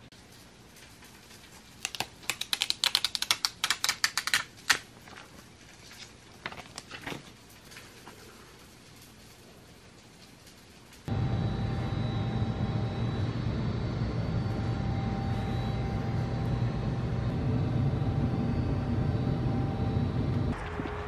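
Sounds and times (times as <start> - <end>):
plastic film crackling: 0.7 - 11.0.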